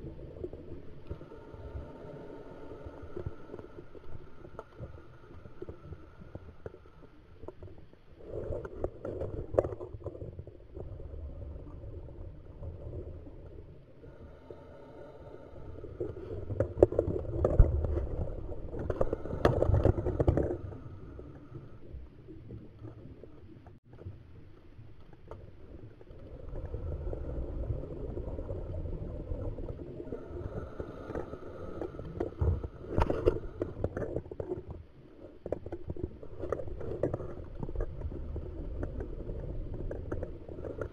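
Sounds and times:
regulator hum on inhale: 1.0 - 7.1, 13.8 - 17.1, 30.0 - 34.0
exhaled bubbles underwater: 25.4 - 40.9.

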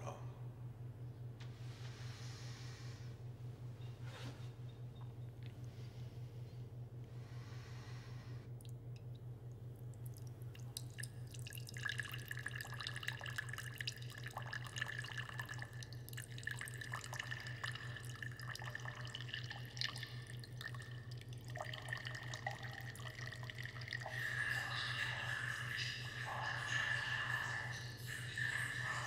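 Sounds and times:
low steady hum: 0.0 - 29.0
liquid trickling into a glass: 9.8 - 29.0
steady ringing tone: 22.5 - 29.0.

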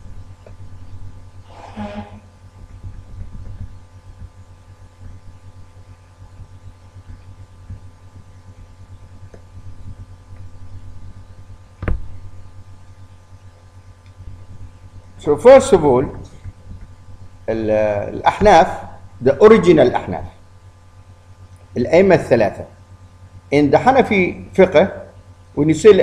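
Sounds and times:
low background hum: 0.0 - 26.0
sharp thump: 11.8 - 12.1.

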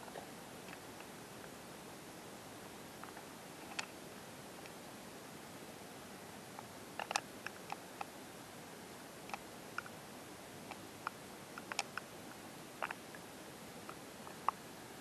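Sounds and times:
faint steady hiss: 0.0 - 15.0
sharp ticks and clicks: 10.7 - 12.1.

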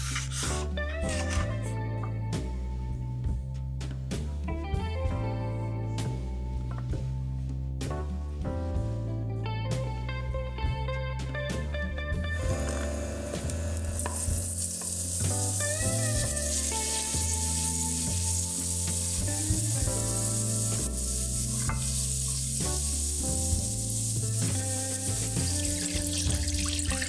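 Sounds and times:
garlic sizzling in a pot: 0.0 - 1.4, 12.4 - 27.0.

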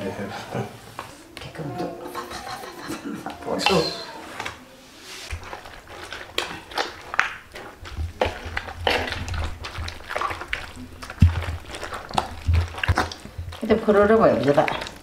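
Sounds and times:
wet squishing of churned cream: 5.2 - 15.0.

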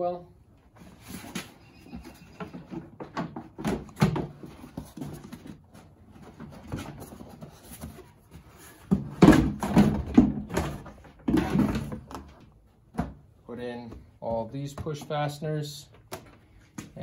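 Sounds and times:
plastic panel knocks and rattles: 8.9 - 12.4.

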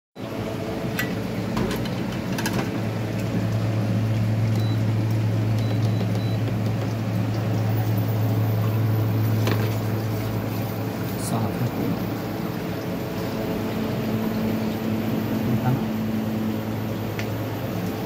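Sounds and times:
induction cooktop humming: 0.2 - 18.0.

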